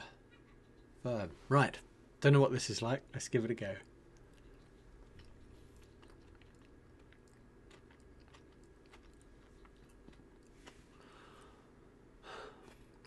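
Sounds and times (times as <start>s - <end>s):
chewing with wet mouth clicks: 3.8s - 10.8s.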